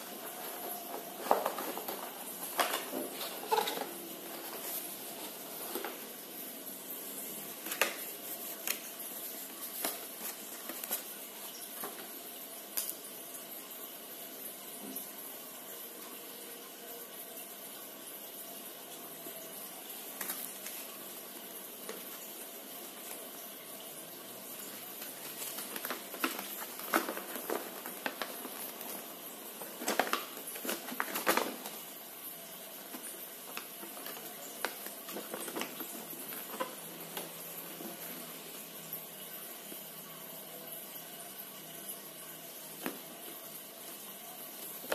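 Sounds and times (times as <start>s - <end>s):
paper rustling and crackling: 0.0s - 6.2s, 7.4s - 12.2s, 20.1s - 22.2s, 24.7s - 31.9s, 32.8s - 38.5s.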